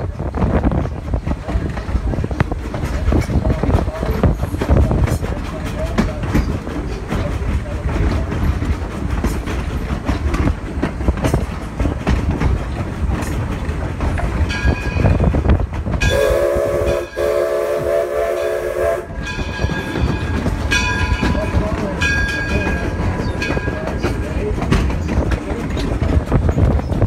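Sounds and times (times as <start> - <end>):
train rumble with rail clicks: 0.0 - 27.0
steam locomotive whistle: 16.0 - 19.2.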